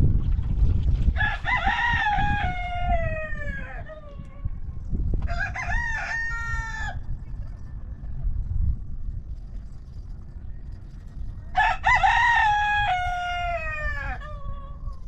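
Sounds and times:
rooster crowing: 0:01.2 - 0:04.5, 0:05.2 - 0:07.0, 0:11.5 - 0:15.0.

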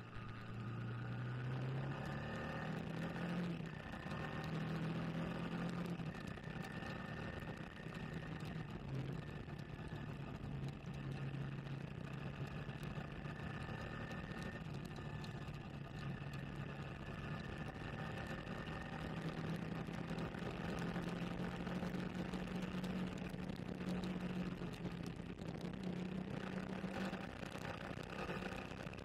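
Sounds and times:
motorcycle engine accelerating: 0:00.0 - 0:29.0.

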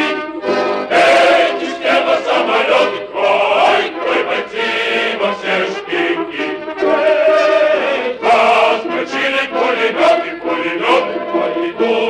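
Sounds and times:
choir singing: 0:00.0 - 0:12.0.

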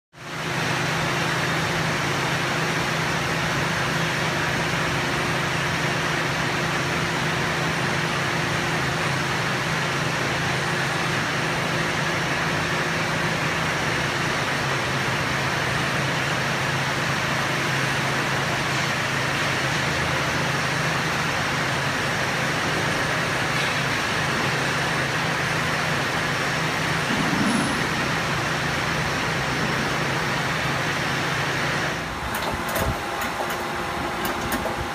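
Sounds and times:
industrial machinery humming: 0:00.3 - 0:34.9
higher hum: 0:26.9 - 0:30.8.

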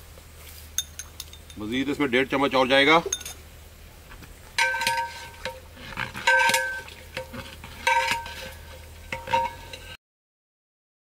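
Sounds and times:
ladle stirring chickpeas in pot: 0:04.5 - 0:10.0
ladle clanging against metal pot: 0:04.6 - 0:10.0.

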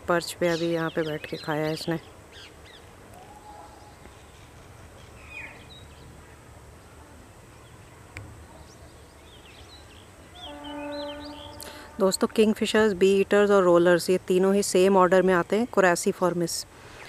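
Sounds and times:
distant bird chirps: 0:07.6 - 0:12.8.

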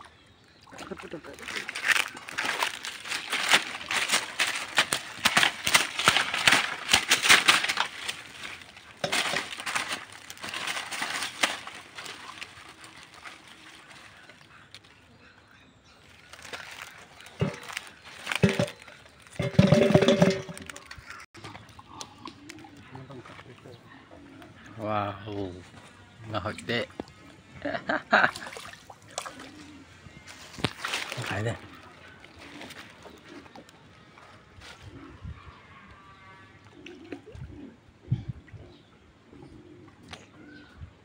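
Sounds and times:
dry leaves crackling: 0:01.0 - 0:15.0, 0:16.0 - 0:21.2, 0:30.3 - 0:34.8
fish clanking in metal basin: 0:01.5 - 0:12.6, 0:16.4 - 0:21.5.

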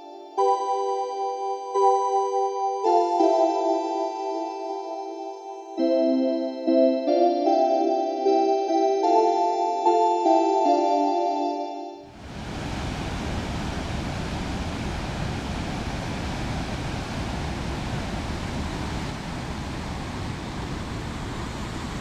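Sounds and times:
waterfall rushing: 0:12.1 - 0:22.0.

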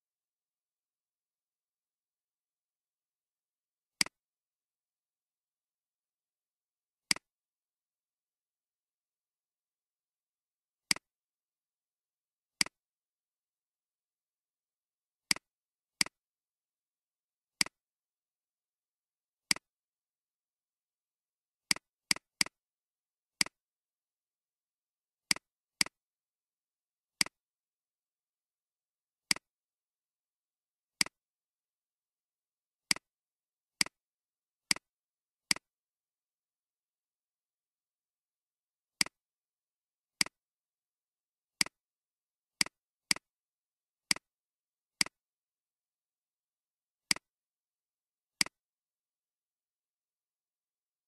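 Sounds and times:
computer mouse clicks: 0:07.1 - 0:07.3, 0:10.9 - 0:11.1, 0:19.5 - 0:19.7, 0:27.2 - 0:27.4, 0:29.3 - 0:29.5, 0:32.9 - 0:33.1, 0:34.7 - 0:34.9, 0:35.5 - 0:35.7, 0:45.0 - 0:45.2, 0:47.1 - 0:47.3.

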